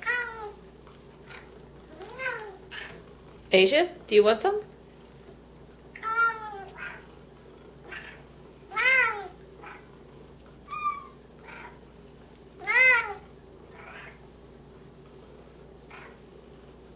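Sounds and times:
cats meowing: 0.0 - 0.6, 1.3 - 3.0, 6.0 - 7.1, 7.9 - 9.9, 10.7 - 11.8, 12.6 - 14.2.

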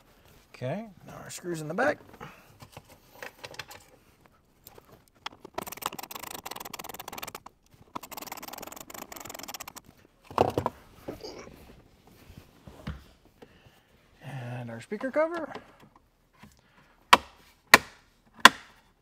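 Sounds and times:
screwdriver clicking: 4.7 - 9.8.

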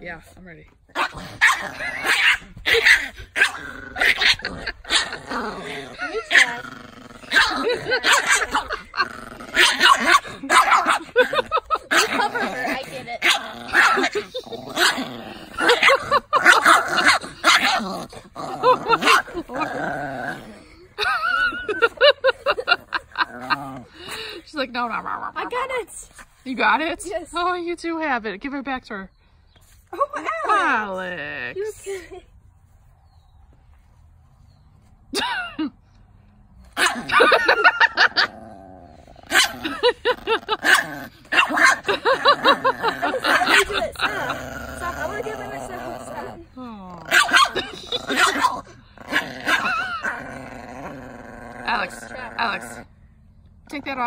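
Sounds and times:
small dog yapping and snarling: 0.9 - 6.6, 9.5 - 11.2, 11.9 - 19.8, 36.6 - 37.3, 40.6 - 41.9, 47.0 - 50.2
small dog barking: 1.4 - 5.1, 9.6 - 11.1, 40.7 - 41.8, 47.1 - 48.6.

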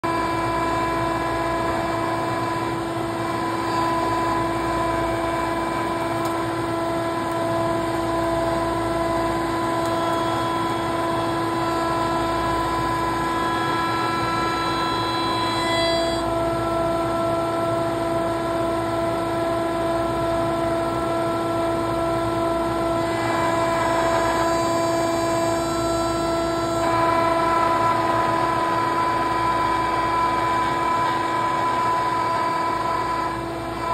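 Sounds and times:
router high-pitched whine: 0.0 - 33.9.

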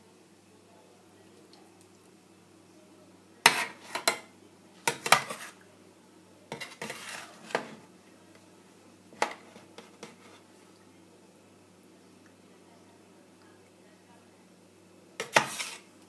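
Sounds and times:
metal spoon scraping metal tray: 3.5 - 4.2, 4.9 - 5.6, 6.5 - 7.8, 15.2 - 15.9.

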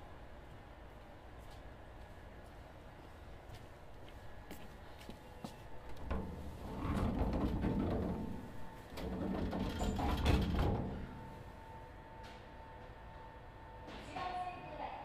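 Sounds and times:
train car humming: 0.0 - 14.9
sliding train doors closing: 6.0 - 11.4.

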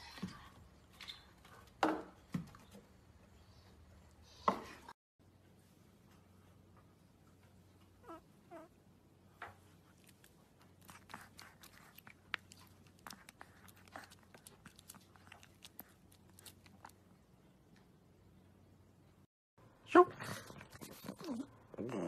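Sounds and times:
puppy whimpering: 8.0 - 8.7
puppy mouth clicks and smacks: 9.9 - 17.1.

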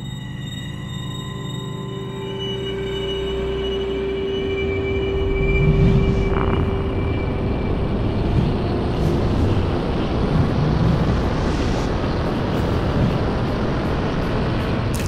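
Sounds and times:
rushing whoosh rumble: 5.0 - 14.9.

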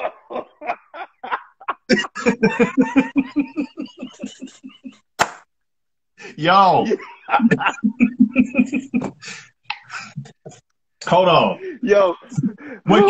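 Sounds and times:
men laughing hard: 0.0 - 5.1, 6.8 - 10.6, 12.2 - 13.0.

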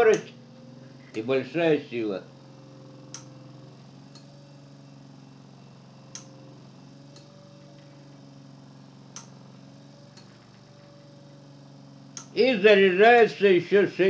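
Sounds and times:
electric motor humming: 0.0 - 14.0
relay clicking: 9.1 - 9.4, 10.1 - 11.1.

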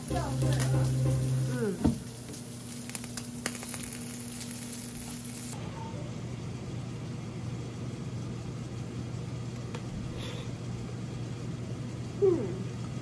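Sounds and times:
low steady hum: 0.0 - 2.2
chicken sizzling and crackling: 0.0 - 5.6
oven hum: 0.0 - 13.0.

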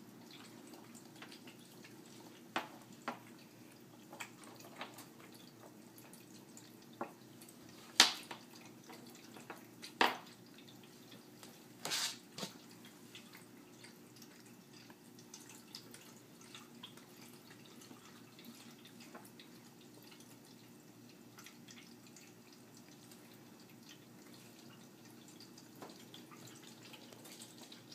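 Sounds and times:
water fountain trickling: 0.0 - 11.8, 12.6 - 27.9.

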